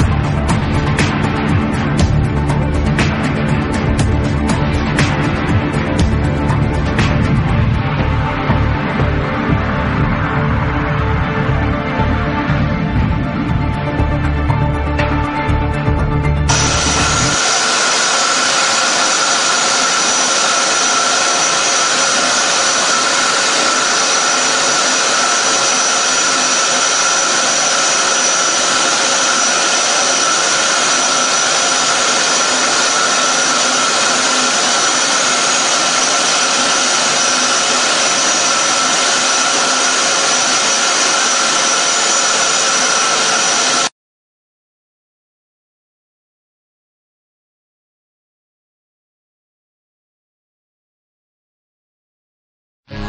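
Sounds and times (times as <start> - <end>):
burner flame roaring: 16.5 - 43.9.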